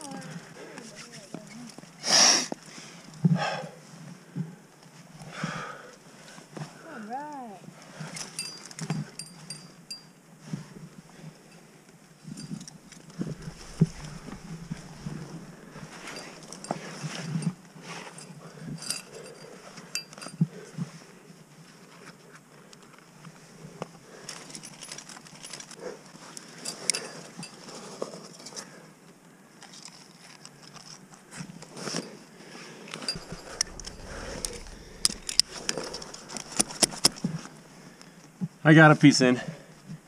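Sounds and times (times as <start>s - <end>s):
metal climbing gear clinking: 7.9s - 20.5s, 24.2s - 28.8s, 32.9s - 37.6s.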